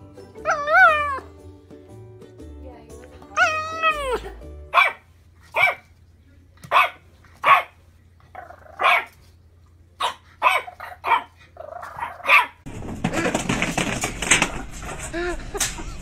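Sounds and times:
small puppy barking: 3.4 - 5.9, 6.7 - 7.8, 8.4 - 9.2, 10.0 - 12.6.

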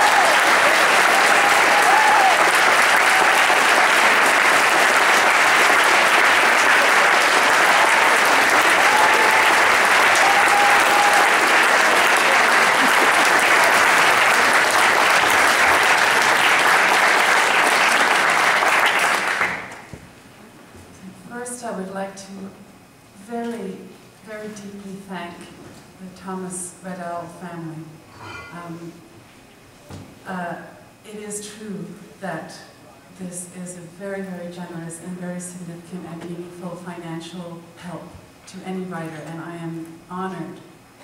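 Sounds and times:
audience applauding: 0.0 - 19.9.

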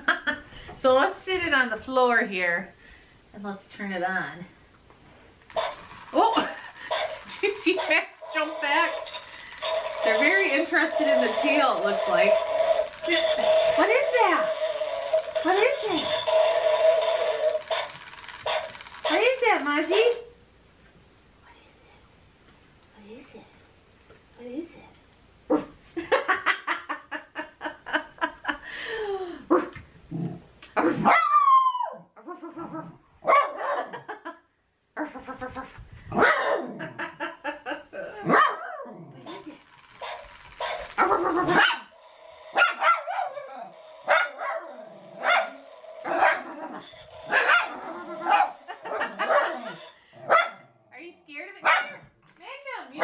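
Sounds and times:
toy dog recorded barks: 5.5 - 20.2, 38.2 - 50.6
small dogs barking: 30.8 - 31.6, 33.2 - 34.0, 36.1 - 36.8, 38.2 - 39.0, 40.0 - 41.9, 42.5 - 50.7.

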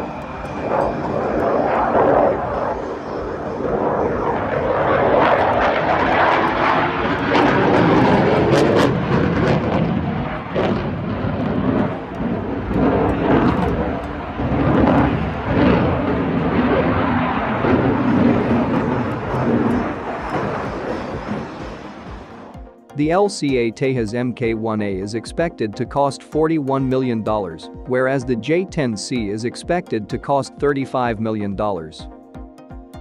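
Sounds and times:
jet engine roar: 0.0 - 23.9.

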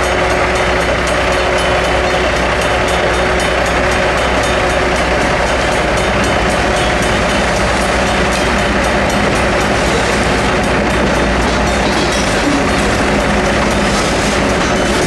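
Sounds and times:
crossing bells ringing: 0.0 - 15.0
train cars rumbling over rails: 0.0 - 15.0.

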